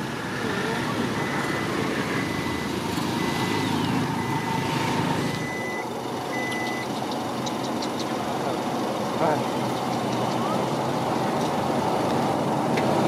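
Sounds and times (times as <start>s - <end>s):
vehicle engine rumble: 0.0s - 13.0s
reversing alarm beeping: 0.5s - 6.9s.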